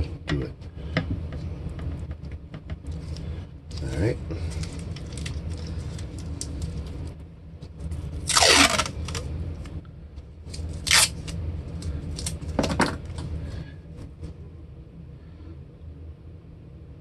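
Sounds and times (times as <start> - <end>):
tape and paper crackling: 2.8 - 9.7, 10.5 - 13.3
tape ripping off roll: 8.2 - 9.3, 10.5 - 11.4.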